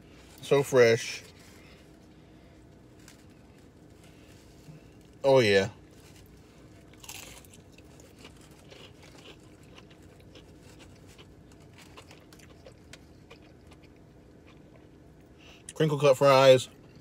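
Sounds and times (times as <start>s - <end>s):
chewing crunchy food: 6.1s - 15.8s.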